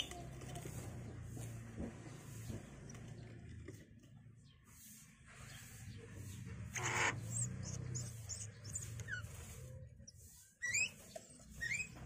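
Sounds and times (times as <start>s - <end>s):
high bird chirps: 4.4s - 12.0s
rising squeaks: 6.7s - 10.0s, 10.6s - 12.0s.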